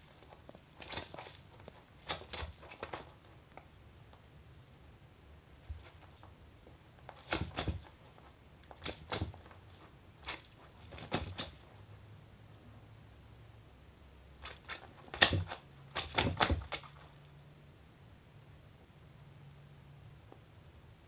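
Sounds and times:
kitten scuffling with plush toy: 0.0s - 3.6s, 5.6s - 11.8s.

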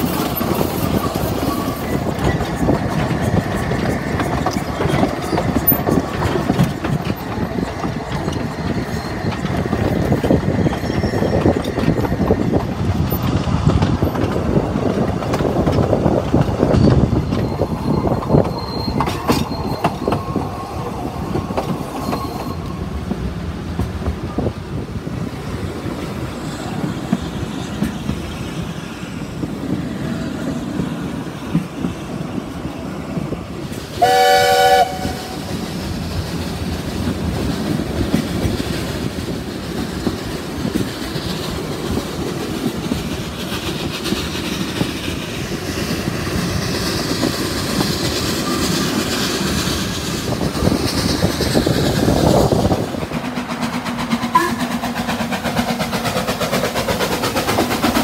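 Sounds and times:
approaching steam locomotive: 0.0s - 58.0s
train wheels clattering on rails: 0.0s - 58.0s
steam whistle blast: 34.0s - 35.4s, 54.3s - 54.6s.

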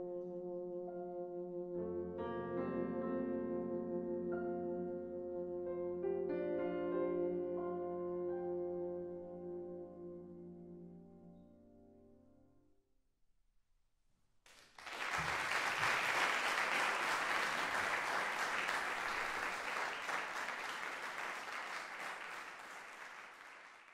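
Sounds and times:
tuba and piano chord: 0.0s - 12.4s
audience applause: 14.5s - 23.9s.

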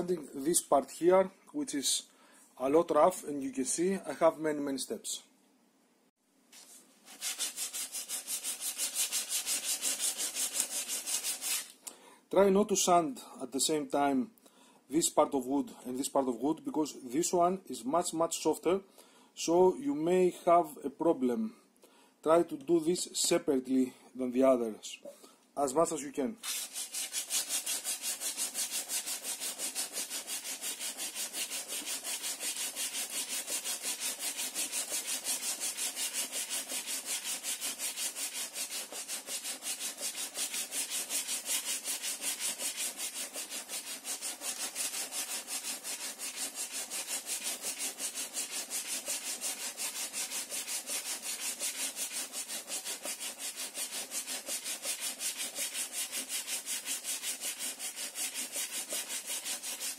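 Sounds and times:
sandpaper rubbing on wood: 6.6s - 11.7s, 26.4s - 59.9s.

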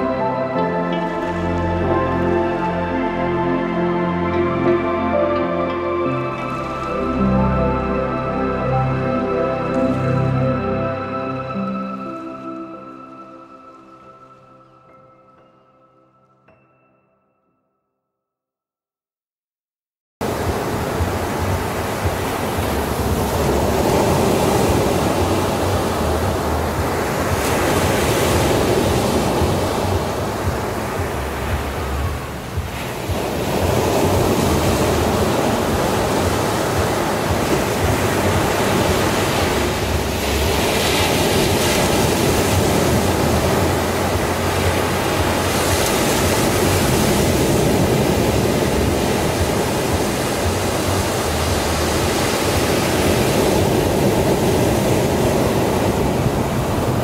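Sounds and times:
ocean surf washing onto beach: 20.2s - 57.0s.

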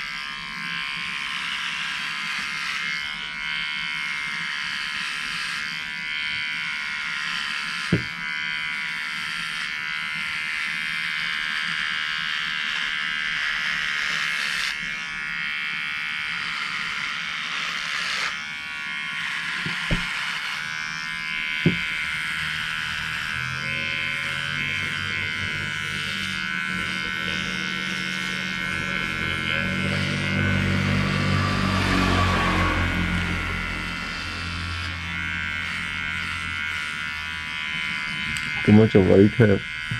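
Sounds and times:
hair trimmer buzzing: 0.0s - 39.9s
low hum: 21.7s - 39.0s.

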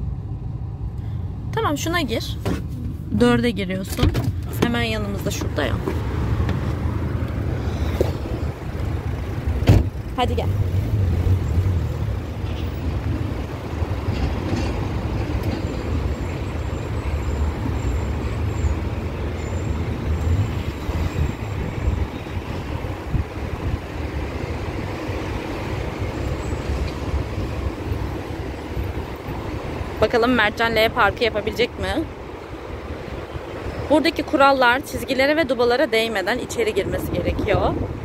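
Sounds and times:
car engine running low: 0.0s - 30.0s
road rumble inside car: 0.0s - 38.0s.

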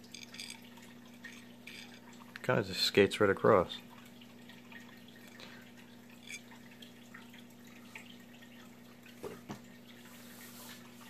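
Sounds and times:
light clicks of metal reel parts: 0.0s - 2.6s.

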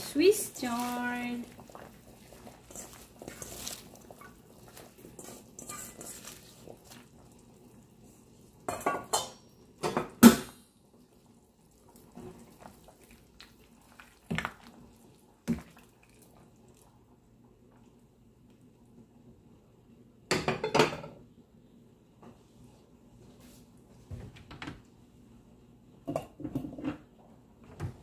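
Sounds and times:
soft stirring rustle: 0.0s - 9.8s, 10.8s - 19.4s, 22.2s - 24.3s.

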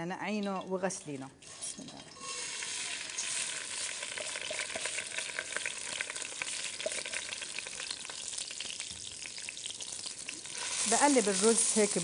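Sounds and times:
rice sizzling in hot oil: 2.2s - 12.0s.

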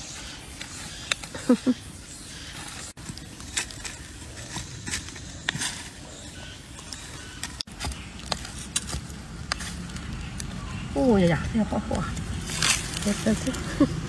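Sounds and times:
blade scraping in soil and leaves: 0.0s - 14.0s
crackles and light knocks: 6.8s - 10.8s.

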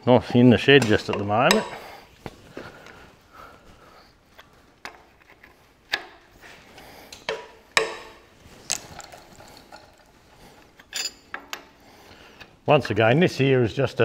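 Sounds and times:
breaker bar clinking on nuts: 0.8s - 1.9s, 10.8s - 11.7s
sharp metal knocks: 0.8s - 1.9s, 7.2s - 8.3s.

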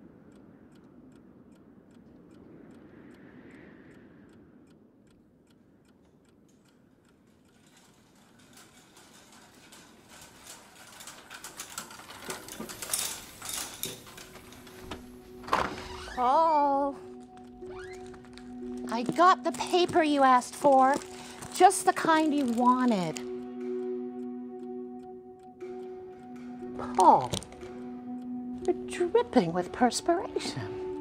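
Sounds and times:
clock ticking: 0.0s - 31.0s
irregular clicking and clacking: 4.7s - 16.4s, 17.0s - 23.9s, 25.6s - 30.9s.

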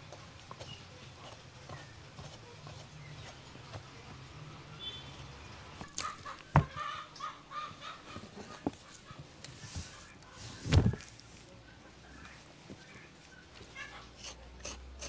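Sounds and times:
dull thumps on table: 6.5s - 6.8s.

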